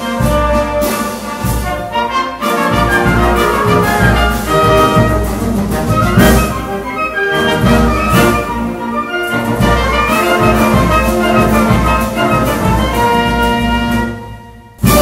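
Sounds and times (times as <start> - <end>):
wind band playing: 0.0 - 15.0.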